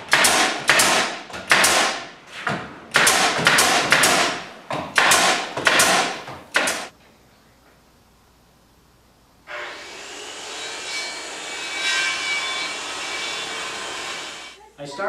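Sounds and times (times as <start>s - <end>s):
pneumatic nailer shots: 0.0s - 6.9s.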